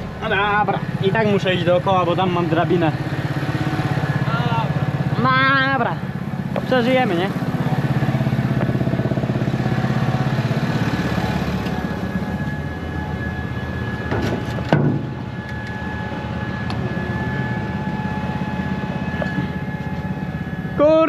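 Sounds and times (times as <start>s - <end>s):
tractor diesel engine idling: 0.0s - 21.0s.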